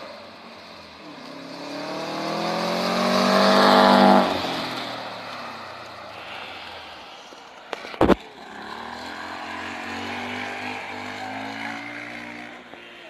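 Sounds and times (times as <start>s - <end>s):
distant engine revving: 1.4s - 5.4s, 8.0s - 12.6s.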